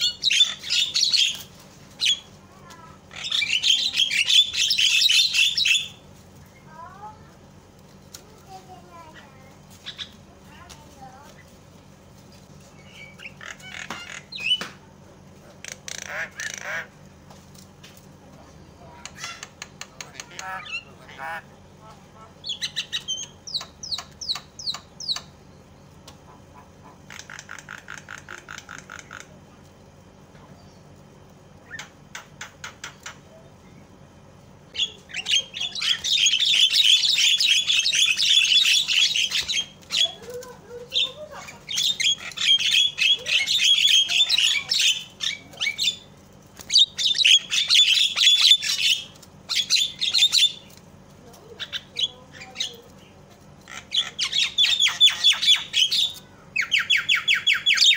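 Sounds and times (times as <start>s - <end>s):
myna clicks and rattle: 26.0s - 33.3s, 35.1s - 55.1s
myna harsh chattering: 34.8s - 50.7s.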